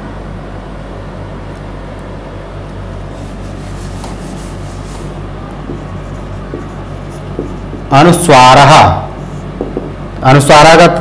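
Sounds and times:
low electrical hum: 0.0 - 11.0
eraser rubbing on whiteboard: 3.1 - 7.9.

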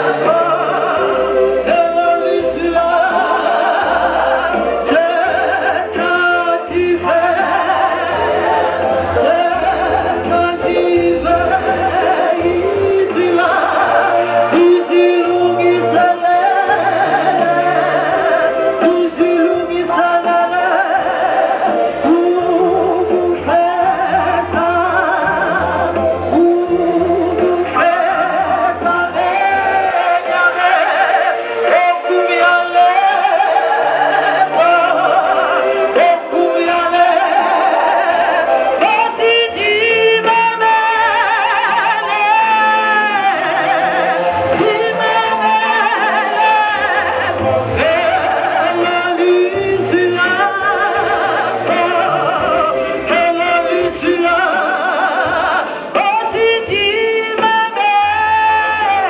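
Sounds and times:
low bass notes: 0.0 - 30.8
group singing a hymn: 0.0 - 59.0.

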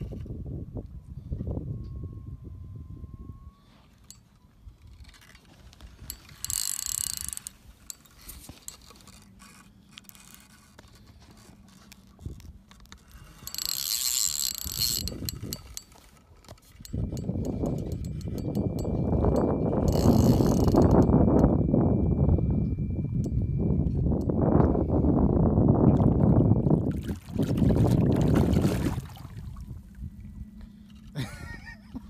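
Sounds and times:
fishing reel clicking: 4.0 - 10.4, 12.7 - 21.6.

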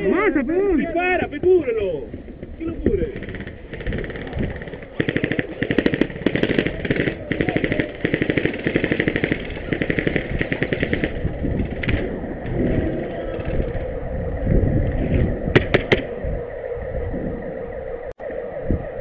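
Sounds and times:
airsoft rifle firing: 3.1 - 12.0, 15.6 - 16.1.

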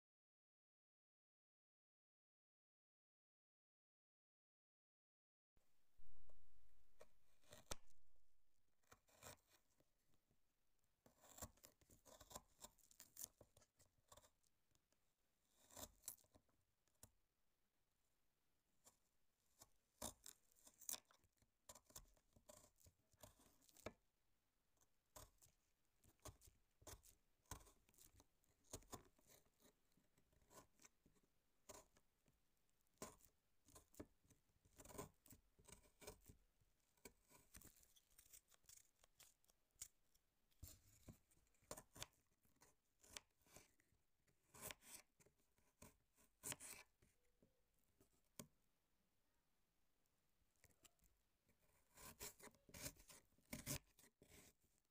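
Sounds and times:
knife slicing fruit: 6.0 - 8.0.

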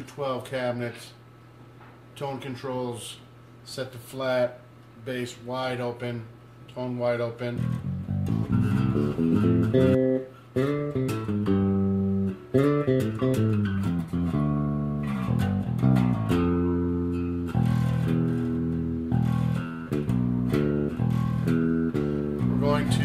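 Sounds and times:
electric bass line: 7.5 - 23.0.

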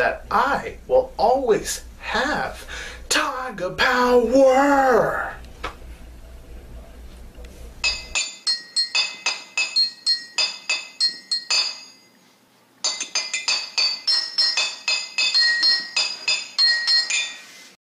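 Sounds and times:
ringing chime-like strikes: 7.8 - 12.2, 12.8 - 17.8.

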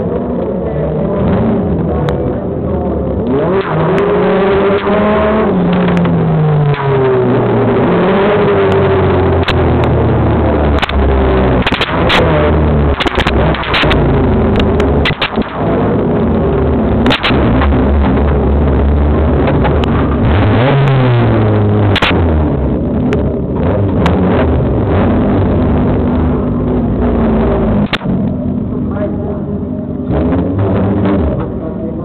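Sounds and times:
race car engines revving: 0.0 - 32.0
sharp clicks: 9.4 - 10.0, 10.7 - 15.8, 17.0 - 18.4, 21.9 - 22.2, 27.8 - 28.4.

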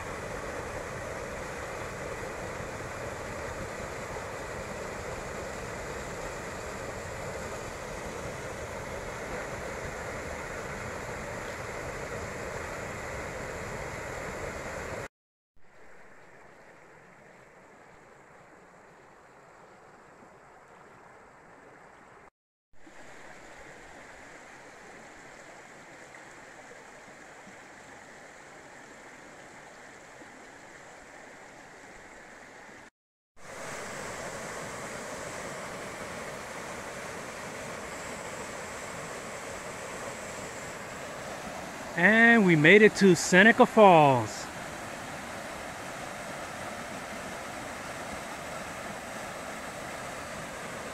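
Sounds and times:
waterfall rushing: 33.5 - 50.9.

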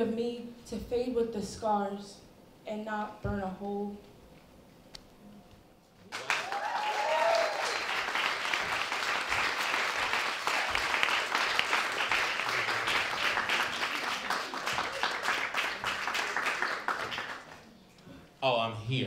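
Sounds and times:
audience applauding: 6.1 - 17.7.

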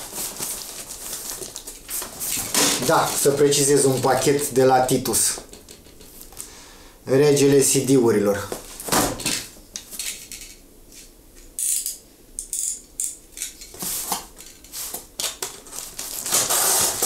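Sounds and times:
packaging rustling: 0.0 - 4.6, 13.7 - 17.0.

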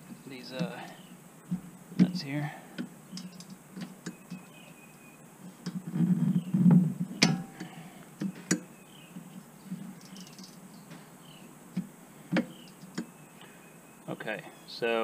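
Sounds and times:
low rustle: 5.4 - 8.5.

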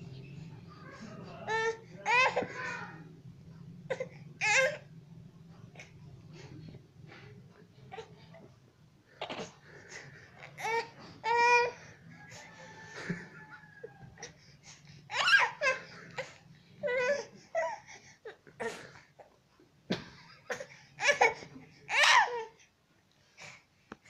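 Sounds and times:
baby laughing and babbling: 0.8 - 3.0.

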